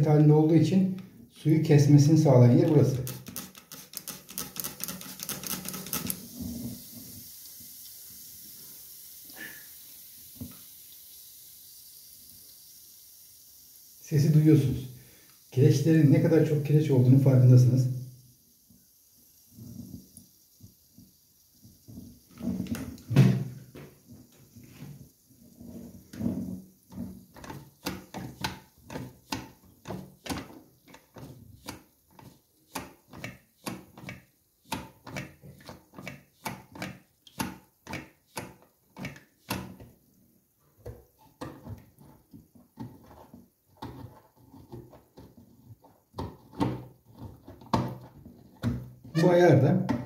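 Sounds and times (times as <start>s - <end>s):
fill valve clicking and knocking: 2.5s - 6.3s, 26.0s - 40.0s, 40.8s - 50.0s.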